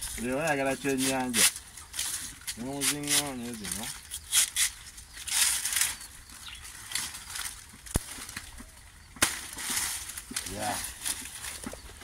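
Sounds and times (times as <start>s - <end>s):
leaves rustling and tearing: 0.0s - 12.0s
frond snapping: 1.0s - 6.0s, 6.8s - 11.8s.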